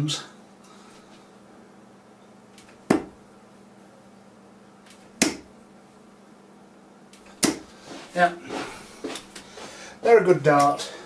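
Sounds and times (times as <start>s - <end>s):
darts striking a dartboard: 2.6s - 3.2s, 4.9s - 5.5s, 7.4s - 7.7s.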